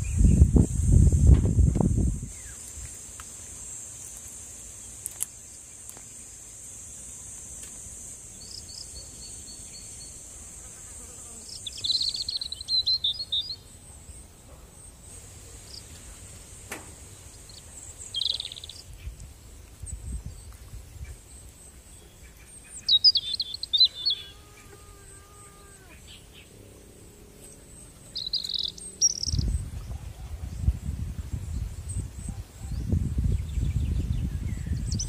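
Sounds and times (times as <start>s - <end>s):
insects droning: 0.0s - 35.0s
bird chirping: 8.3s - 10.3s, 11.4s - 16.0s, 17.1s - 18.9s, 20.1s - 30.6s, 31.6s - 35.0s.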